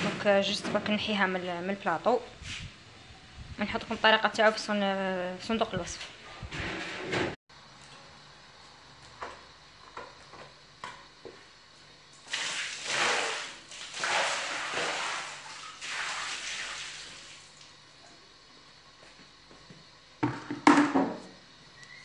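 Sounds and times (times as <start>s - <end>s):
water splashing across floor: 12.2s - 17.7s.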